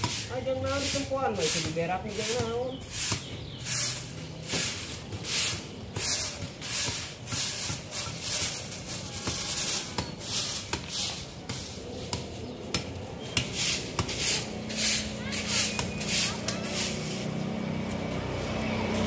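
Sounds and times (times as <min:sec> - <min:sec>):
hand scraping strokes: 0:00.0 - 0:19.0.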